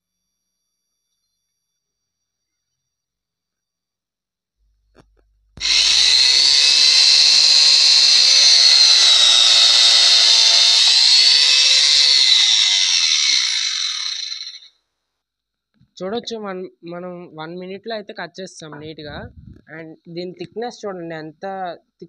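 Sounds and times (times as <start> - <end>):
angle grinder cutting metal pipe: 5.6 - 14.7.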